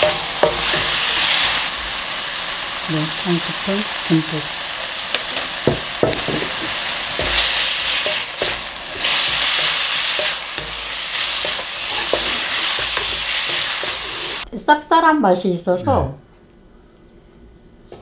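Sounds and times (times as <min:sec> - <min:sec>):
vegetables sizzling in hot oil: 0:00.0 - 0:14.4
spatula knocking against pan: 0:05.6 - 0:08.6.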